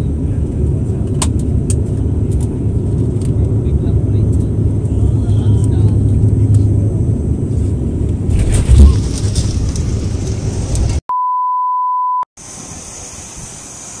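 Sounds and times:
turboprop engines rumbling in cabin: 0.0s - 11.0s
test-tone beep: 11.1s - 12.2s.

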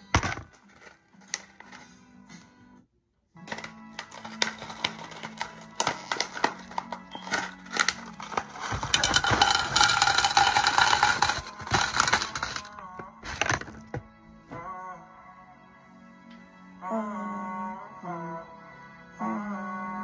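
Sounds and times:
items clicking and rattling: 0.0s - 1.9s, 3.5s - 14.1s
quiet background music: 0.0s - 20.0s
plastic bag crinkling: 3.5s - 14.0s.

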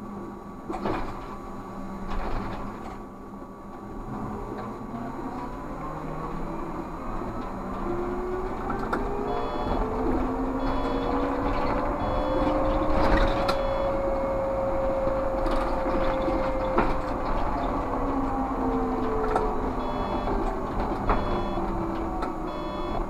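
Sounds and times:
road rumble: 0.0s - 23.0s
trolleybus electric drive whining: 0.0s - 23.0s
short high beep: 9.3s - 9.8s, 13.4s - 14.0s, 22.5s - 23.0s.

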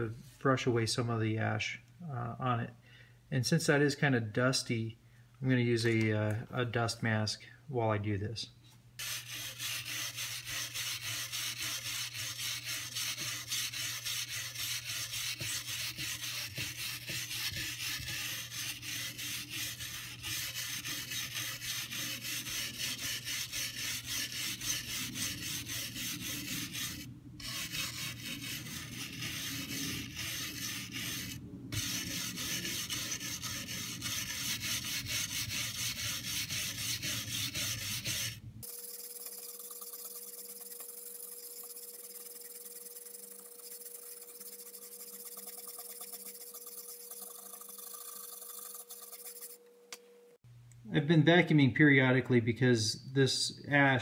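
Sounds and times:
wire brush scraping charred wood: 9.0s - 49.6s.

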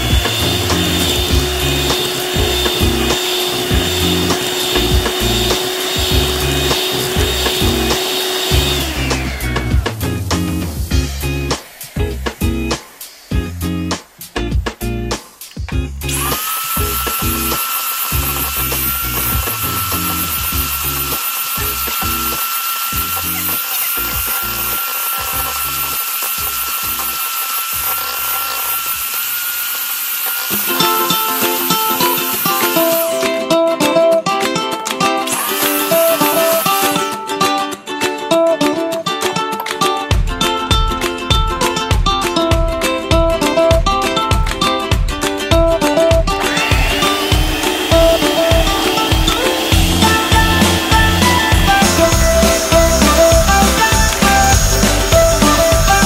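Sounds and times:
electric hand mixer whining: 0.0s - 13.3s, 16.1s - 33.3s, 35.2s - 37.2s, 46.4s - 56.0s.

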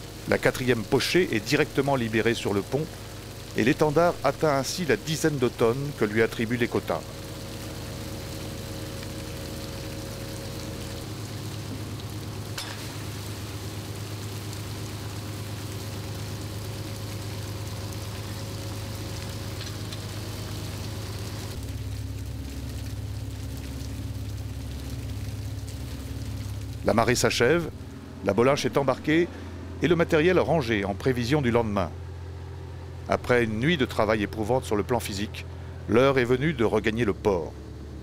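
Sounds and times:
fish and water hissing patter: 0.0s - 28.0s
boat engine humming: 0.0s - 38.0s.

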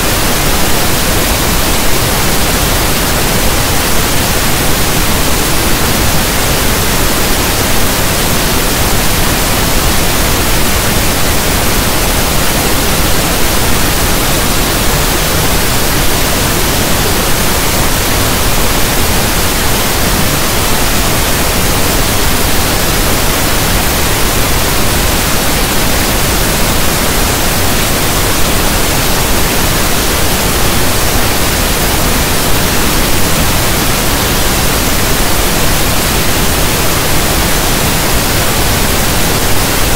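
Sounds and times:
pink noise hiss: 0.0s - 39.9s.

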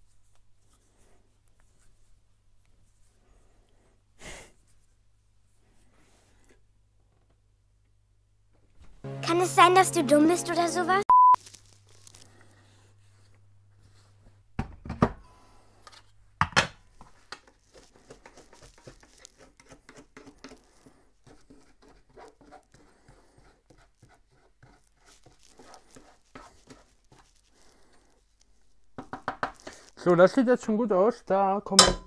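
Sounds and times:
sugar crackling in a pan: 11.4s - 12.8s.

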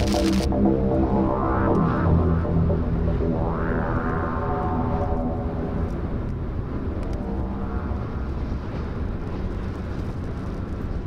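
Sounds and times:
background music: 0.0s - 8.8s
car road and tyre noise: 3.8s - 11.0s.

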